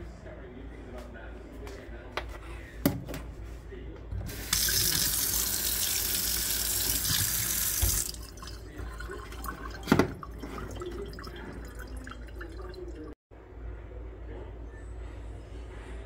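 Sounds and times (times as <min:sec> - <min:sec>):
tap running into metal sink: 0:06.8 - 0:08.2.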